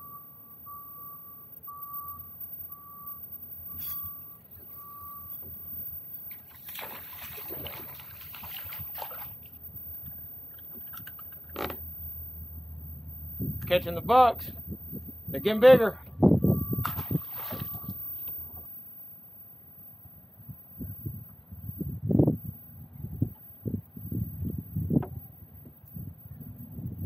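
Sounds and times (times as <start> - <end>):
short electronic beeps: 0.0 - 6.5, 11.8 - 18.8
fish splashing in water: 6.3 - 9.6, 16.7 - 18.0.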